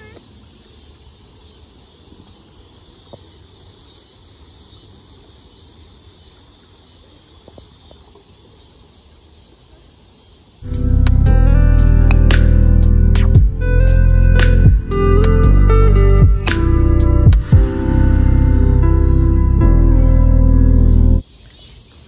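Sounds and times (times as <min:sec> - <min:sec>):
insect chorus: 0:00.0 - 0:13.2, 0:20.6 - 0:22.0.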